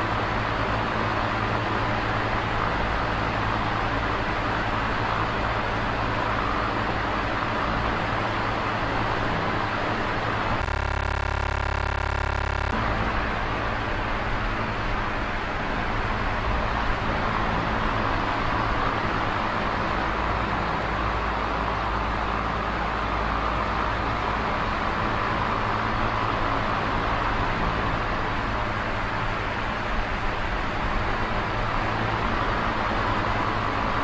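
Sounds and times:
electric fan whirring: 0:10.6 - 0:13.1
steady humming tone: 0:10.6 - 0:13.1.

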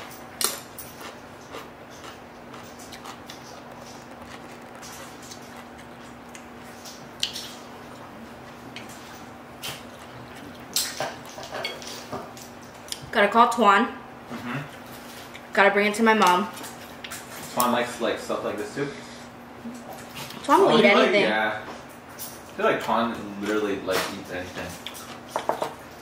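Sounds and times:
steady low hum: 0:00.0 - 0:26.0
wet chewing and slurping: 0:00.4 - 0:12.1.

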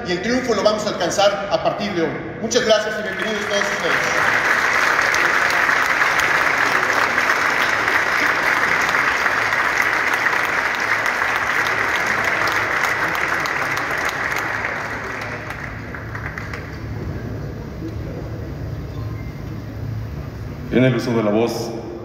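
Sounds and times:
audience applauding: 0:02.8 - 0:17.6.

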